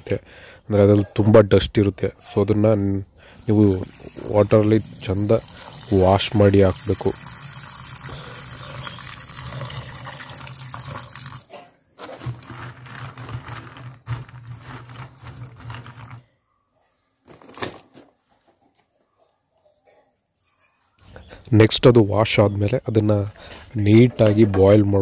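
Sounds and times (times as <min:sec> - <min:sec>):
tap water running into steel bowl: 0:03.4 - 0:11.5.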